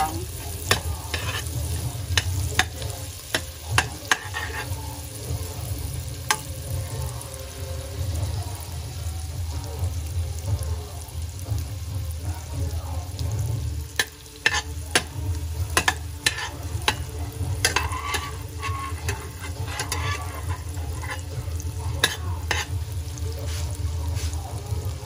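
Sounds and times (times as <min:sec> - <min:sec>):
garlic sizzling in butter: 0:00.0 - 0:25.0
metal spoon clinking on pot: 0:00.6 - 0:04.7, 0:14.0 - 0:15.2, 0:15.8 - 0:22.7.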